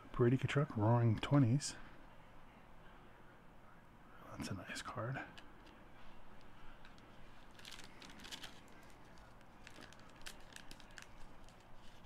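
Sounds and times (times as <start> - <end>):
trading cards rustling and clicking: 6.4 - 12.0.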